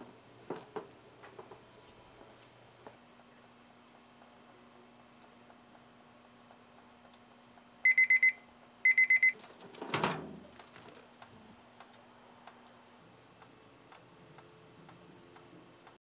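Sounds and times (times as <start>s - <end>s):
kitchen timer beeping: 7.8s - 9.4s.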